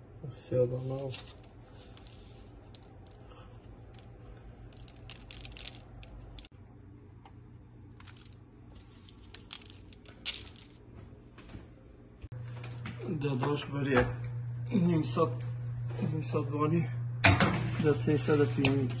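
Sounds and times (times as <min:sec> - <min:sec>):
steady low hum: 0:00.0 - 0:19.0
parchment paper crinkling: 0:00.7 - 0:04.1, 0:04.7 - 0:06.5, 0:08.0 - 0:10.8.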